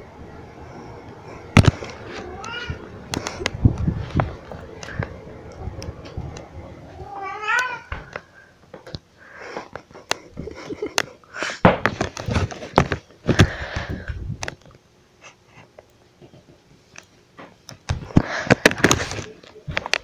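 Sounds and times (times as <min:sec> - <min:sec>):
cat meowing: 0:02.2 - 0:02.9, 0:07.0 - 0:07.9.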